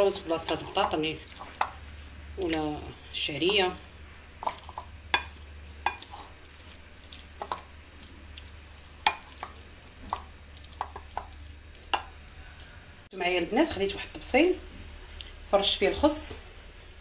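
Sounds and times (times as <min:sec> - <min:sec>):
spoon stirring wet food: 0:00.0 - 0:12.7
low steady hum: 0:00.0 - 0:17.0.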